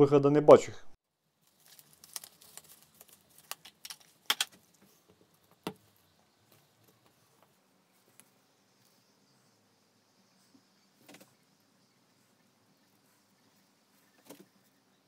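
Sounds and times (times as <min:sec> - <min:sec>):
gloved hands clicking and tapping: 0:03.4 - 0:05.8.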